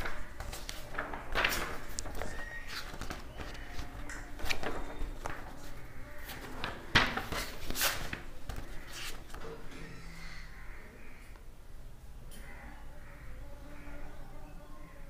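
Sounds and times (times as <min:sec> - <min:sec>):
paper rustling: 0:00.0 - 0:09.7.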